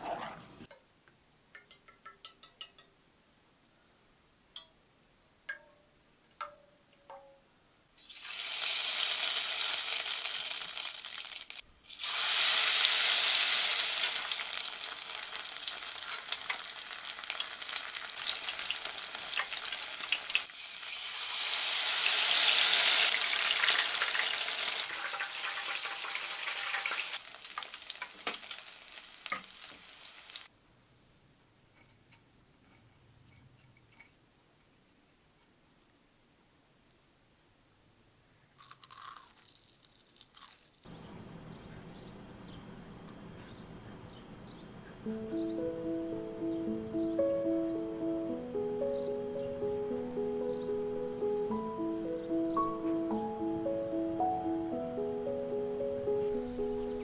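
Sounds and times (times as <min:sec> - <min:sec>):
deep-frying crackling sizzle: 0:08.0 - 0:30.5.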